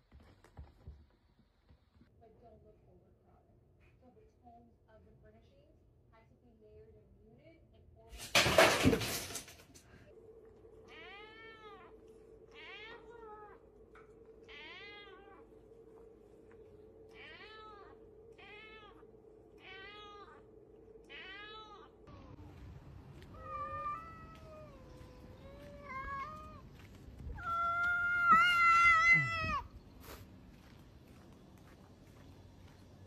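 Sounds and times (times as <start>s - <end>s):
steady hum: 10.0s - 33.0s
cat meowing: 14.4s - 15.5s, 17.1s - 21.9s, 23.3s - 26.7s, 27.3s - 29.7s
cats yowling: 23.2s - 29.8s.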